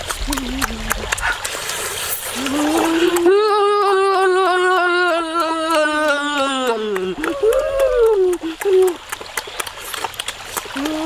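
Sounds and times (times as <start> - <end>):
wet chewing and lip noises: 0.0 - 4.8, 7.1 - 11.0
person holding a long vocal note: 2.4 - 9.0.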